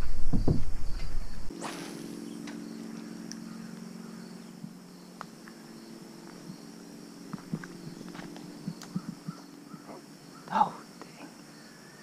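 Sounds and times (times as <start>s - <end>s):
insect drone: 0.0s - 12.0s
steady low hum: 0.0s - 12.0s
wind on microphone: 7.3s - 9.8s.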